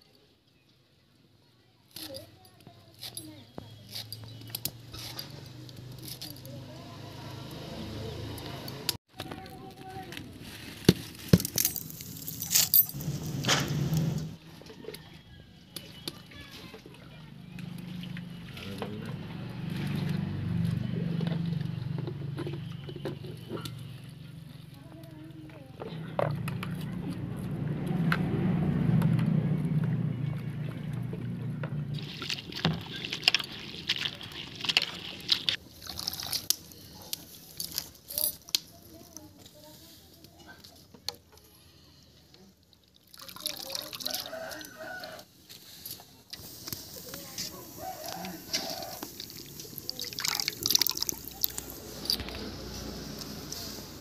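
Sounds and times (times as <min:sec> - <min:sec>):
wet leaves rustling: 0:09.5 - 0:14.2, 0:31.9 - 0:40.8, 0:42.9 - 0:54.0
water sloshing and splashing: 0:15.8 - 0:21.9, 0:29.7 - 0:37.0, 0:42.6 - 0:45.2, 0:48.0 - 0:52.8
leaves squeezed in bowl of water: 0:31.9 - 0:37.9, 0:42.7 - 0:45.3, 0:46.3 - 0:53.7.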